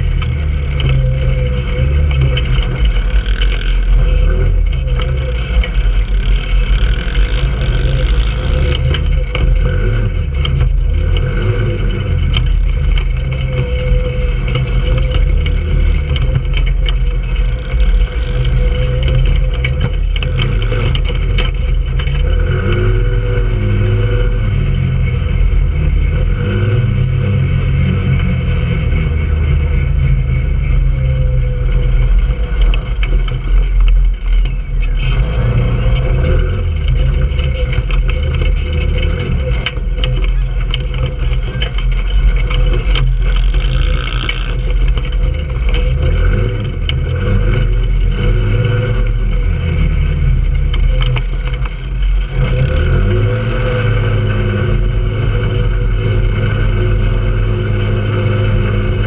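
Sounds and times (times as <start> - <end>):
knocks and rattles from bumps: 0.0 - 25.3
go-kart engine running: 0.0 - 59.0.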